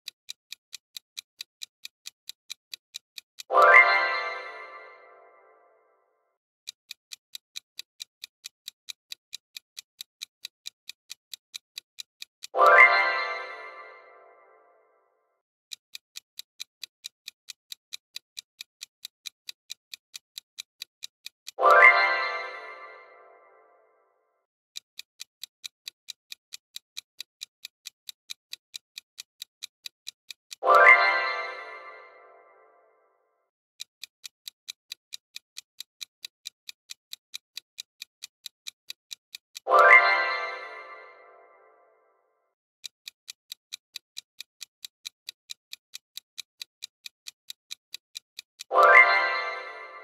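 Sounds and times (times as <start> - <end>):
clock-style ticking timer: 0.0 - 50.0
chime ringing: 48.7 - 50.0.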